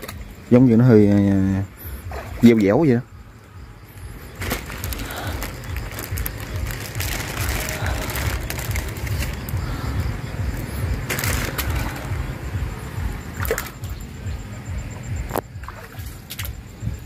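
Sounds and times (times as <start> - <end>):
low unsteady rumble: 3.0 - 17.0
plastic bag rustling: 4.3 - 9.6, 11.0 - 12.2.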